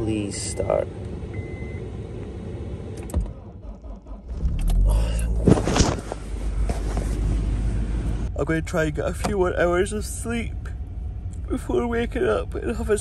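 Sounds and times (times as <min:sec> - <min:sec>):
car engine starting and idling: 0:00.0 - 0:13.0.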